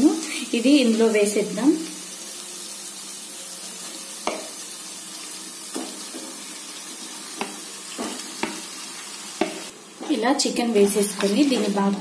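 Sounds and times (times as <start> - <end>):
chicken sizzling in a pan: 0.0 - 12.0.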